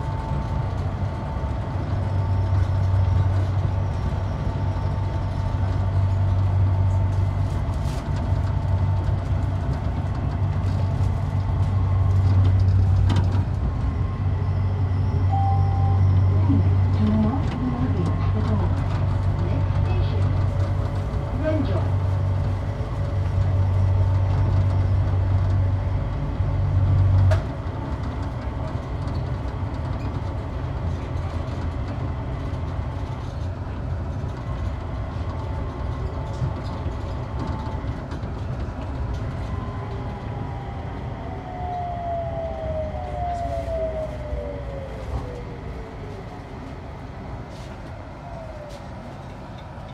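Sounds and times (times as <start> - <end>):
train rumbling on guideway: 0.0 - 49.9
train whine falling in pitch: 14.0 - 16.4.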